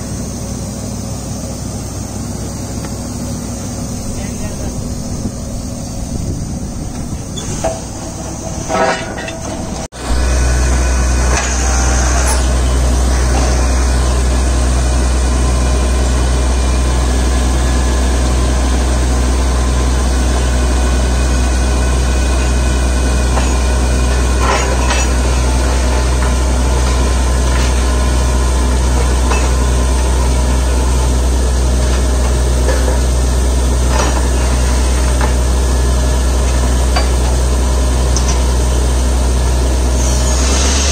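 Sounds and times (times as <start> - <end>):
drilling rig droning: 0.0 - 40.9
metal clanks: 6.8 - 9.9, 23.2 - 28.1.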